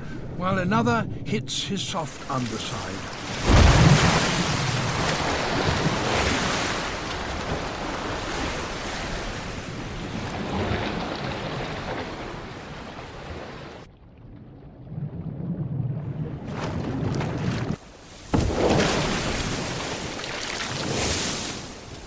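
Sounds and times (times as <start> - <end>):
water splashing and churning: 1.9 - 22.0.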